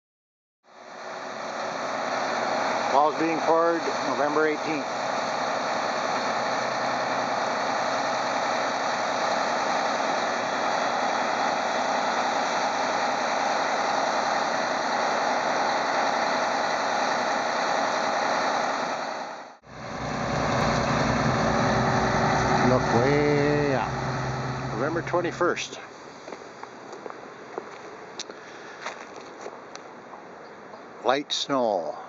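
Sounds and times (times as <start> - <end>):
truck engine running: 19.7 - 25.8.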